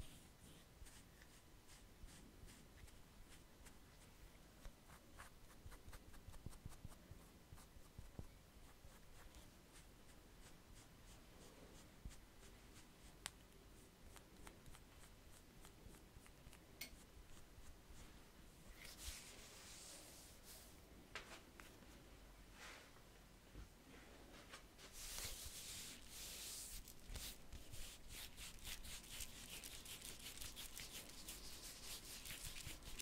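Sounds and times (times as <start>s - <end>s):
scraping tool scratching skin: 25.1s - 33.0s.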